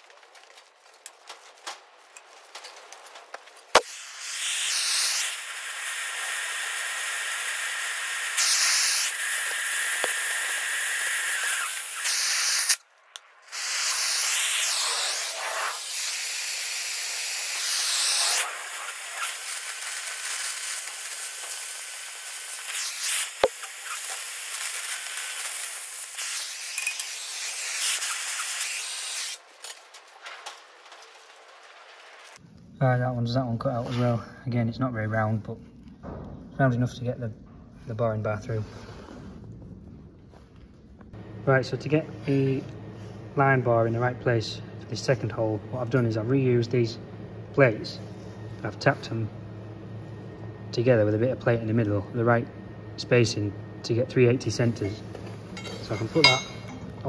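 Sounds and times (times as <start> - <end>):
hissing torch flame: 0.0 - 32.4
torch ignition pop: 3.7 - 7.6, 8.2 - 10.7, 11.4 - 29.8.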